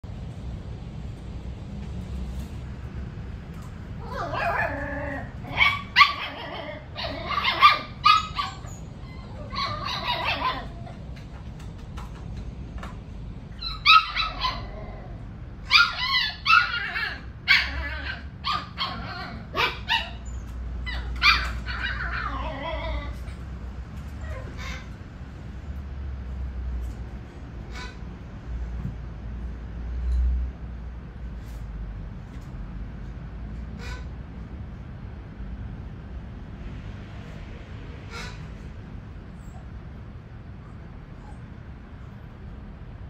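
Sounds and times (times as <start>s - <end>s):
puppies yipping and whining: 4.0s - 11.4s, 13.6s - 23.5s, 24.1s - 25.0s.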